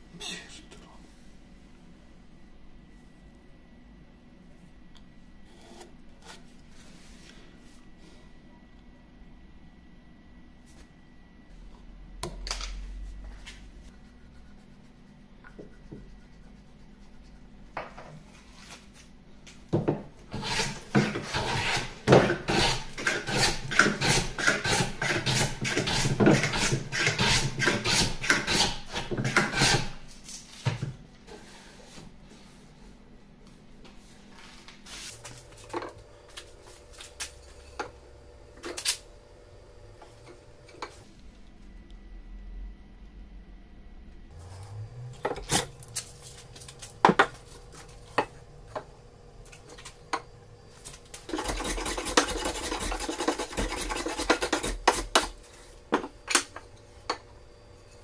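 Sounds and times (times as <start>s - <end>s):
card scraper scraping wood: 20.3s - 30.0s, 51.2s - 55.4s.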